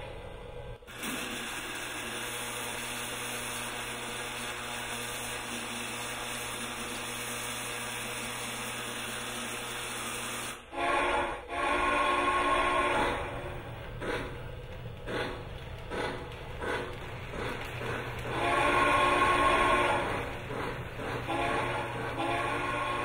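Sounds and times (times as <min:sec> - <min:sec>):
steady steam hiss: 0:00.8 - 0:23.0
steam whistle blasts: 0:00.9 - 0:13.5, 0:18.3 - 0:20.3, 0:21.2 - 0:23.0.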